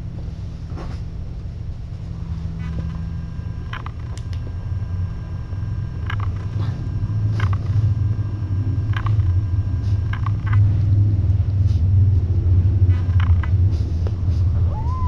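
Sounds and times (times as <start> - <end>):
steady low rumble: 0.0 - 15.0
faint clicks and squeaks: 6.0 - 6.6, 7.3 - 7.8, 8.9 - 10.8, 12.9 - 13.7
kitten mew: 14.6 - 15.0.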